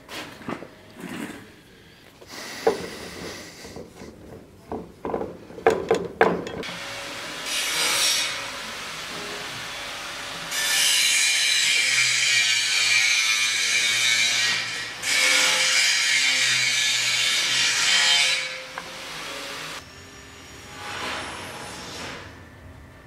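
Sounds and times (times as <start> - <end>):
knocks on a workbench: 4.7 - 6.6.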